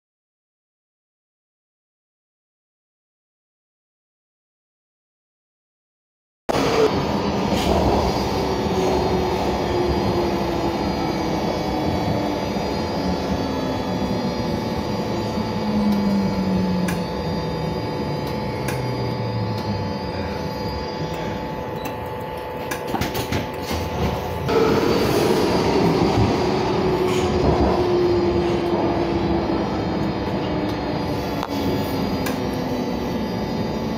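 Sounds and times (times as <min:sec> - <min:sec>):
train rumble: 0:06.5 - 0:20.0, 0:22.4 - 0:33.9.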